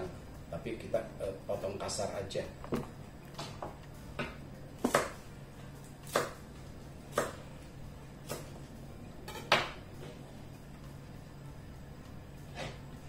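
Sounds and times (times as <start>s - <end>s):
knife chopping on cutting board: 4.2s - 5.2s, 6.0s - 6.4s, 7.1s - 7.4s, 8.2s - 8.6s.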